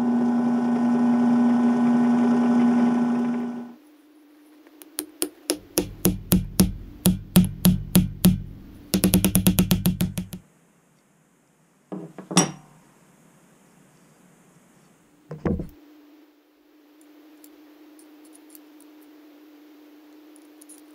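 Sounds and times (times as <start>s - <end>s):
wooden mallet knocking on metal: 5.2s - 10.4s, 15.3s - 15.8s.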